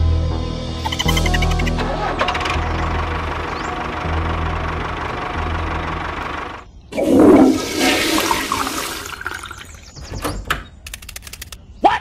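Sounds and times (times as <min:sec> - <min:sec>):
motor hum: 0:00.9 - 0:07.9
water rushing: 0:07.0 - 0:09.8
sharp clicks: 0:10.2 - 0:11.7.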